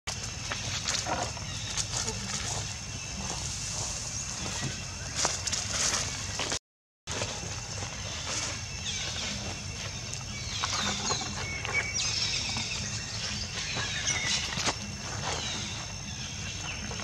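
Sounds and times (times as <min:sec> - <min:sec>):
small animals chirping and squeaking: 0:07.9 - 0:17.0.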